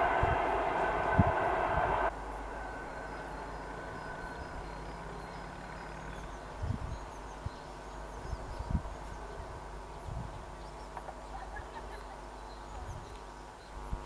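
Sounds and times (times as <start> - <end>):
wind thumps on microphone: 0.0 - 2.1
low steady hum: 0.0 - 14.0
birds chirping: 2.5 - 13.9.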